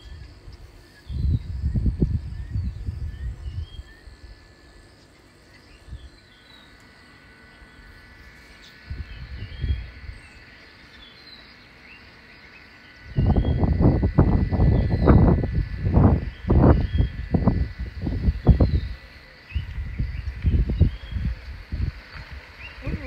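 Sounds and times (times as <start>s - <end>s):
insect drone: 0.0s - 23.0s
bird chirps: 7.5s - 13.8s.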